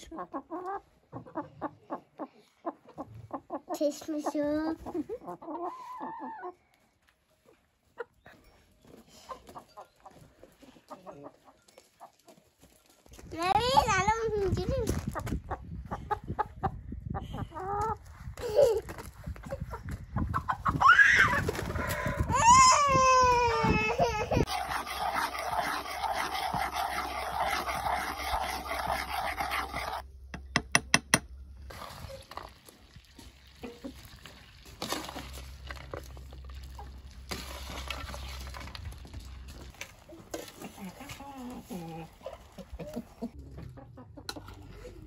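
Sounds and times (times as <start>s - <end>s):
chicken calling: 5.2s - 6.6s.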